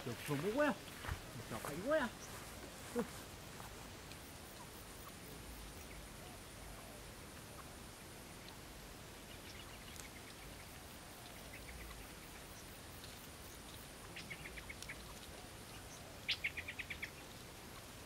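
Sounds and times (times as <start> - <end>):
faint background hiss: 0.0 - 18.0
quail chirping: 4.4 - 18.0.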